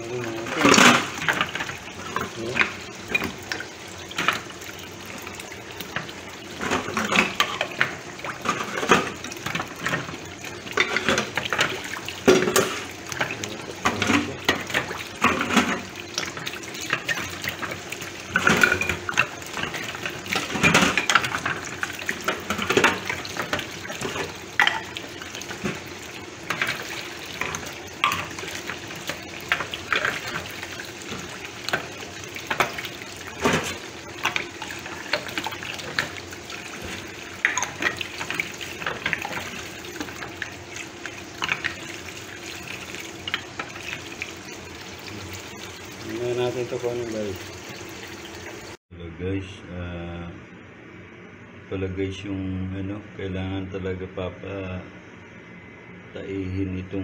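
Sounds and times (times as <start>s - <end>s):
running tap water: 0.0s - 48.8s.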